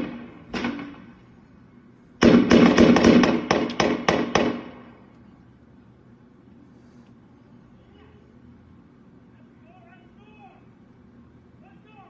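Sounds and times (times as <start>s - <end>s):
gunshots: 0.0s - 1.1s, 2.2s - 4.9s.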